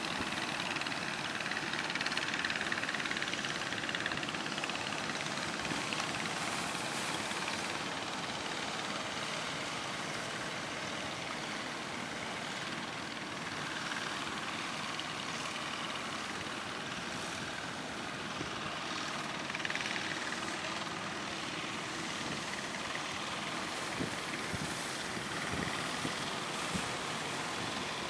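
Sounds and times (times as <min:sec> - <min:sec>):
waves: 0:00.0 - 0:11.2
boat engine running: 0:00.0 - 0:28.0
wind: 0:00.0 - 0:28.0.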